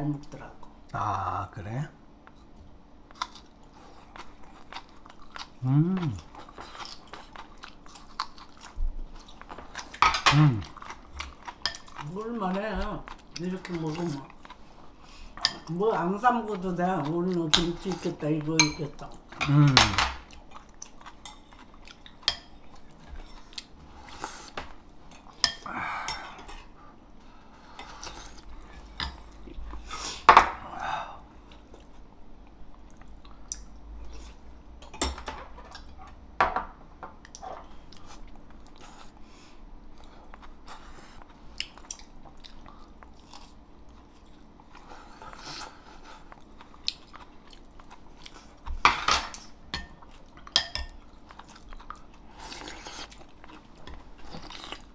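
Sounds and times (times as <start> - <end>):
chewing and crunching: 3.0 - 29.9, 37.2 - 54.9.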